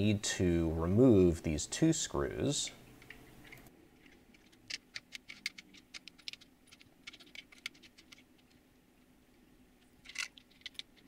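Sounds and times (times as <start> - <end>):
small metal parts handled: 3.0 - 8.6, 10.0 - 11.0.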